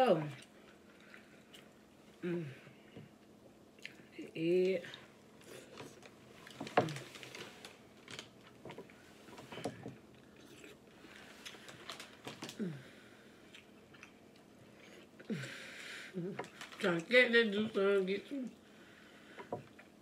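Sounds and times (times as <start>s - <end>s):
chewing and lip smacks: 3.8s - 4.1s, 13.4s - 15.2s.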